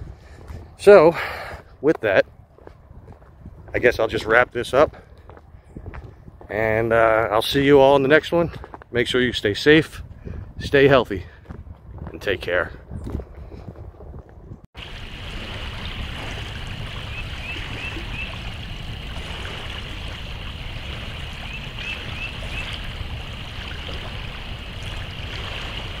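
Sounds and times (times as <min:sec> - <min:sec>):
running water: 0:14.8 - 0:26.0.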